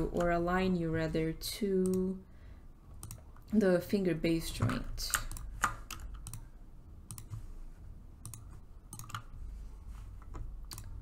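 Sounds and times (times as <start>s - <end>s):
mouse and keyboard clicks: 3.0s - 3.3s, 4.6s - 6.5s, 7.1s - 7.4s, 8.2s - 9.3s, 10.2s - 11.0s.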